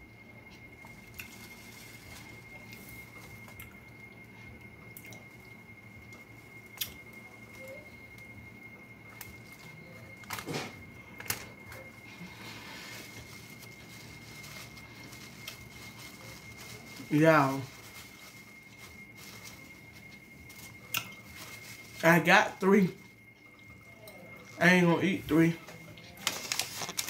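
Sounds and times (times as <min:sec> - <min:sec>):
faint high whine: 0:00.0 - 0:27.0
wet chewing and lip smacks: 0:20.9 - 0:21.2.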